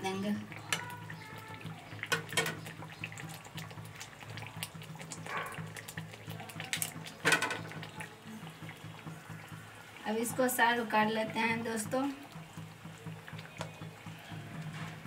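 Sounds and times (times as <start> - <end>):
curry bubbling in a pan: 0.0 - 15.0
spatula stirring liquid: 0.2 - 15.0.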